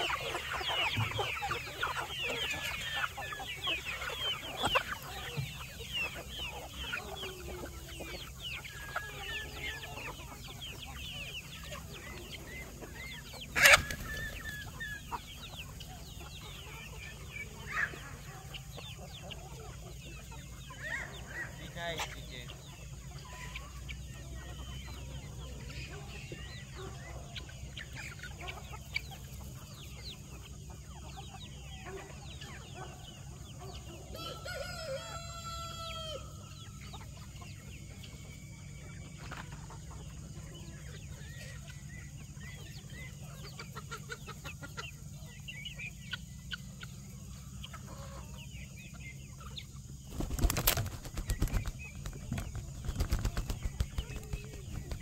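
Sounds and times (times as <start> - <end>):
chickens clucking: 0.0 - 55.0
rooster crowing: 34.1 - 36.4.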